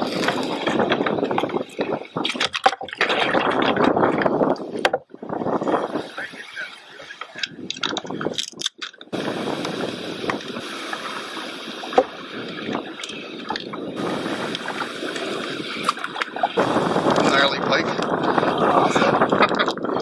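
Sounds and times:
fishing gear clicks and knocks: 0:00.0 - 0:05.1, 0:07.2 - 0:09.1
water lapping against kayak hull: 0:00.0 - 0:20.0
wind on microphone: 0:00.0 - 0:20.0.

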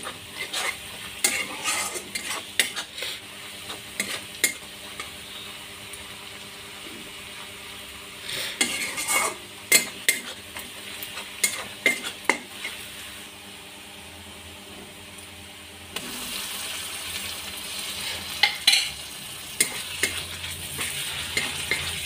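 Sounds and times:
metal spatula scraping a wok: 0:00.0 - 0:05.2, 0:08.3 - 0:12.8, 0:19.6 - 0:22.0
onions sizzling in hot oil: 0:00.0 - 0:14.4, 0:15.1 - 0:22.0.

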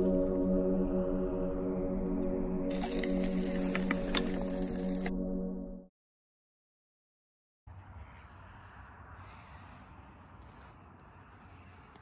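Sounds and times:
slow ambient music: 0:00.0 - 0:05.9.

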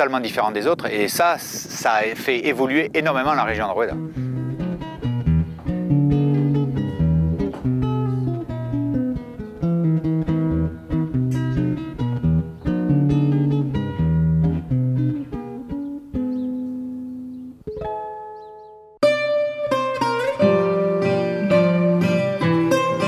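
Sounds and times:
low repeating bass line: 0:03.0 - 0:17.6
plucked guitar notes: 0:03.2 - 0:23.0.

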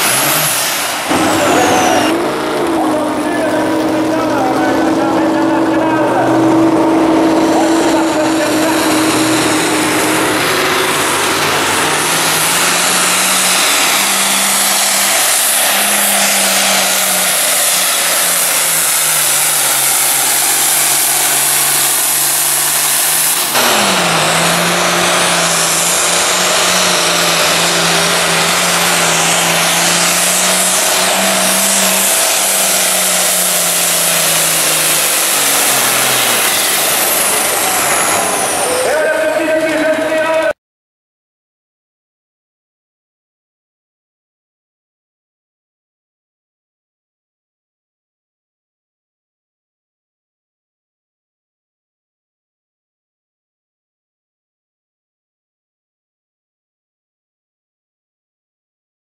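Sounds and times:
diesel tractor engine under load: 0:00.0 - 0:40.5.

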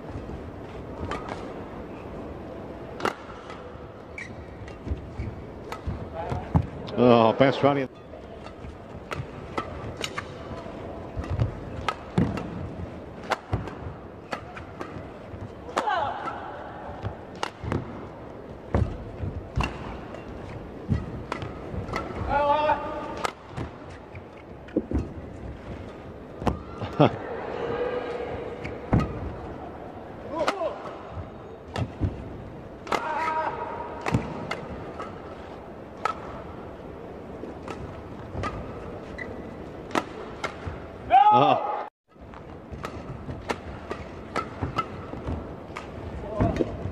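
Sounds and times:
arena background noise: 0:00.0 - 0:46.9
racket hitting shuttlecock: 0:01.0 - 0:01.6, 0:02.9 - 0:06.8, 0:08.4 - 0:24.1, 0:28.6 - 0:29.5, 0:30.3 - 0:36.6, 0:37.5 - 0:40.9, 0:42.3 - 0:46.9.

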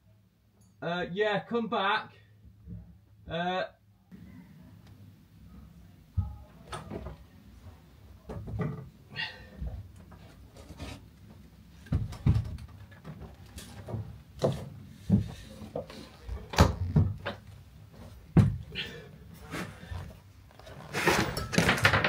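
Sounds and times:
knocks and bumps on wood: 0:11.8 - 0:13.1, 0:18.3 - 0:18.7
rustling: 0:19.3 - 0:21.9.

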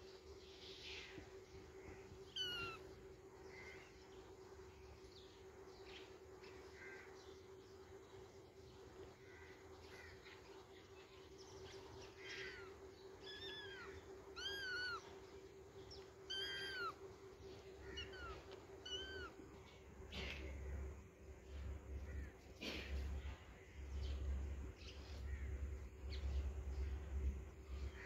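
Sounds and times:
kitten meowing: 0:02.4 - 0:02.8, 0:13.3 - 0:15.0, 0:16.3 - 0:17.0, 0:18.0 - 0:19.4.

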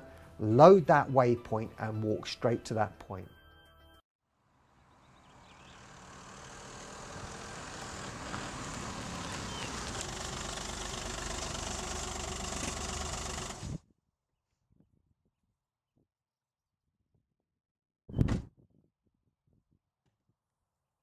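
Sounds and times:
car driving on dirt track: 0:04.8 - 0:13.8.

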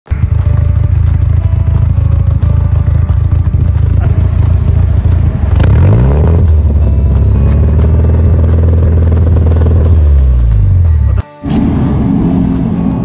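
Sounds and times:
car exhaust engine running: 0:00.1 - 0:13.0.

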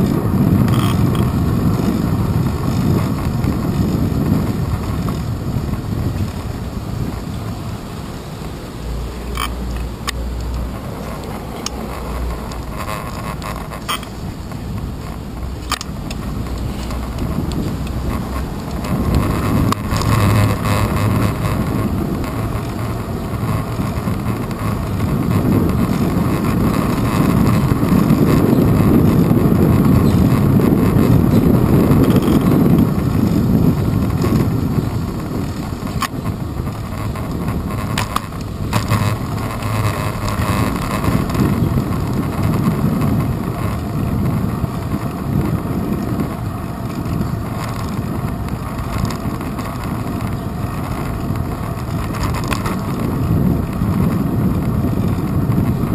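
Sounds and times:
bicycle road rumble: 0:00.0 - 0:55.9
wind buffeting microphone: 0:00.0 - 0:55.9
sharp clicks: 0:09.3 - 0:21.6.

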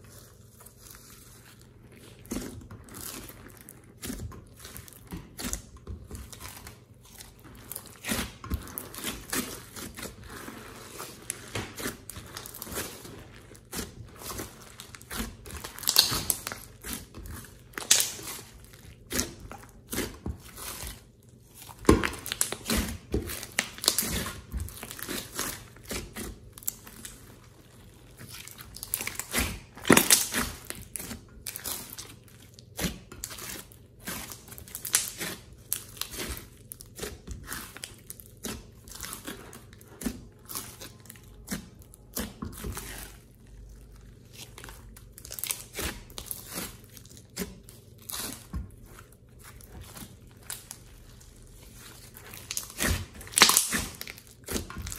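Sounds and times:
slime crackling and popping: 0:00.1 - 0:54.9.

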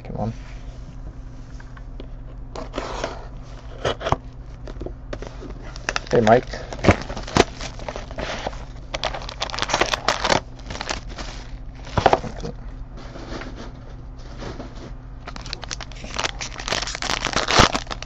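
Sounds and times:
plastic wrap crinkling: 0:05.2 - 0:12.5, 0:15.2 - 0:18.0.

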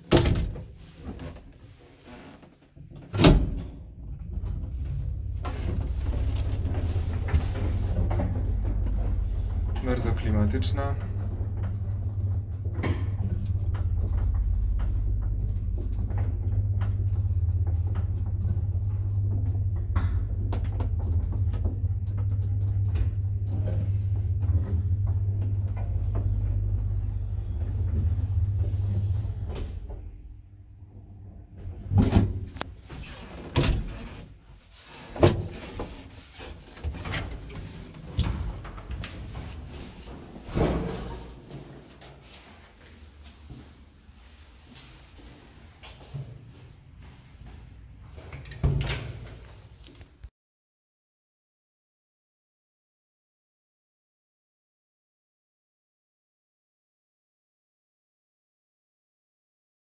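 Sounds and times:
lift doors knocking and clattering: 0:02.8 - 0:30.2
lift humming: 0:04.0 - 0:31.9.

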